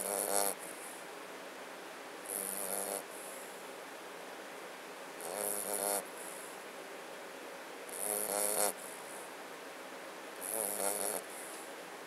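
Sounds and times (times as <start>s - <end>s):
puppy snoring: 0.0s - 0.7s, 2.2s - 3.5s, 5.2s - 6.4s, 7.9s - 9.0s, 10.4s - 11.6s.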